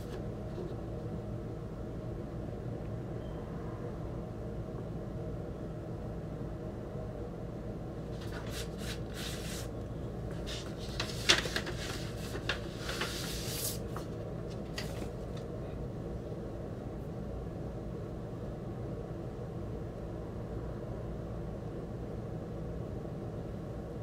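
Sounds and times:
record sleeves rustling and scraping: 0.0 - 0.9, 8.1 - 15.5
steady low hum: 0.0 - 24.0.

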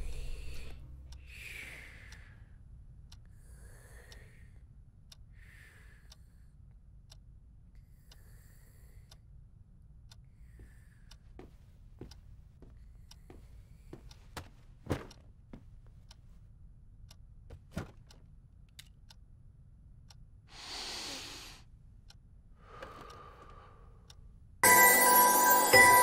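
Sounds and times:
clock ticking: 0.0 - 3.3, 9.9 - 16.2, 22.0 - 26.0.

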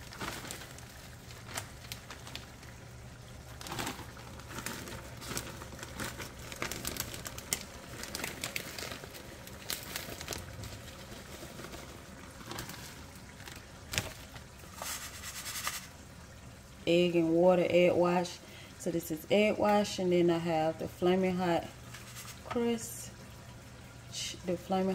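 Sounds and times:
plastic bag crinkling: 0.0 - 15.9.

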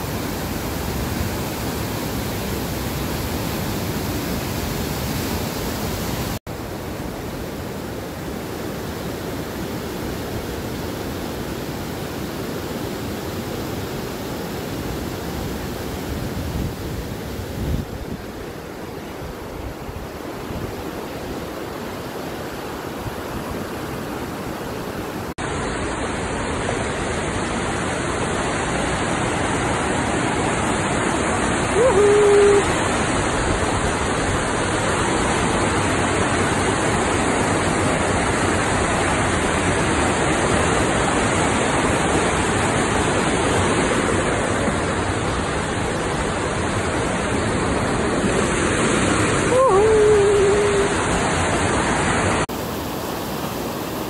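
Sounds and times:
river rapids roaring: 0.0 - 54.0
brief person's voice: 31.7 - 32.7, 49.5 - 51.0.

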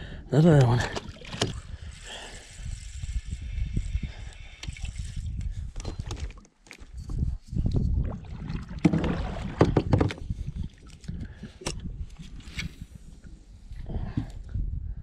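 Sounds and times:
wind rumble on microphone: 1.3 - 15.0
knocks and rubbing from kayak gear: 5.7 - 10.6.

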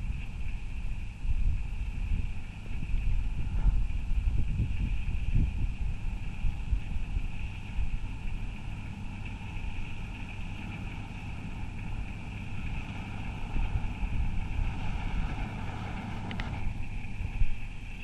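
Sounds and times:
combine harvester running: 0.0 - 18.0
wind buffeting microphone: 0.0 - 18.0.

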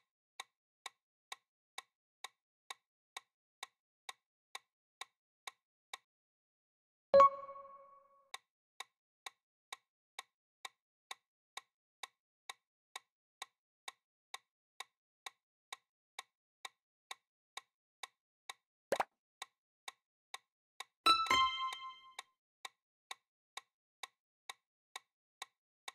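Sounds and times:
clock-like timer ticks: 7.2 - 25.9.

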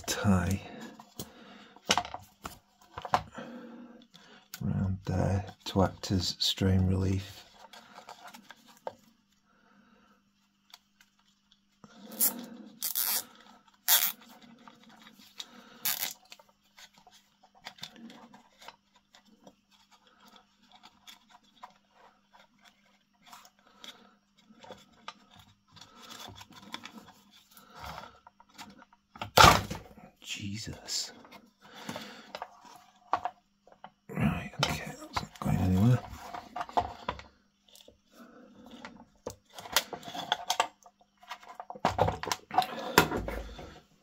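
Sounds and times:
cable tie scraping and handling: 4.0 - 9.4, 10.4 - 29.1, 30.3 - 44.0
cable tie sharp rasps: 12.1 - 14.2, 15.8 - 16.3.

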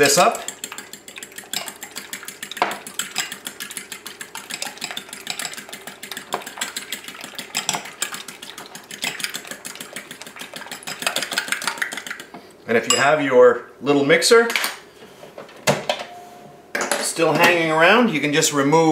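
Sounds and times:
fork beating eggs in glass bowl: 0.0 - 12.3.

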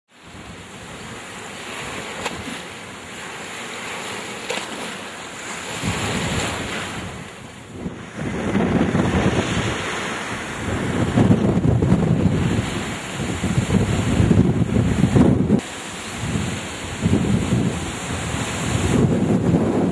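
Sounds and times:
rushing churning water: 0.1 - 19.9
wind gusts buffeting microphone: 5.6 - 19.9.

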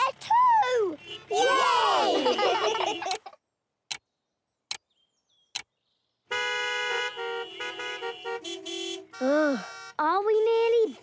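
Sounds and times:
cartoon vehicle horns honking: 0.9 - 3.4, 6.3 - 10.2.

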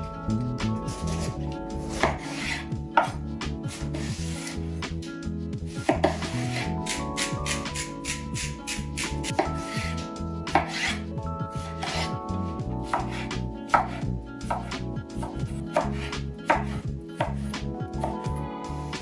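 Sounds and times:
knife striking wooden cutting board: 1.9 - 3.2, 5.8 - 9.9, 10.5 - 11.0, 12.9 - 18.2.

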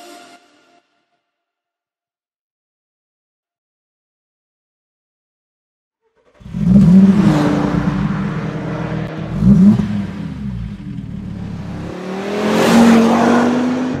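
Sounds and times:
car engine revving: 6.3 - 14.0.

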